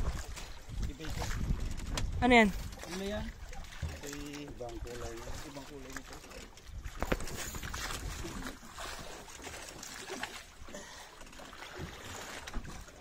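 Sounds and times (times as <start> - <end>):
water lapping against boat: 0.0 - 13.0.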